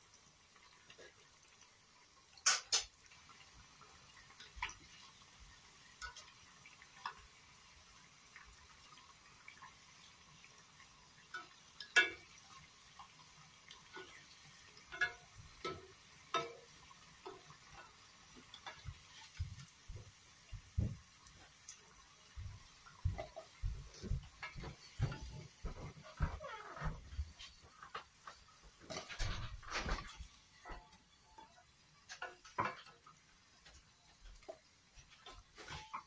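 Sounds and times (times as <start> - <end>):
food deep-frying in hot oil: 0.0 - 36.0
spatula knocking and scraping pan: 11.3 - 12.4, 13.9 - 21.5, 22.9 - 28.1, 28.8 - 36.0.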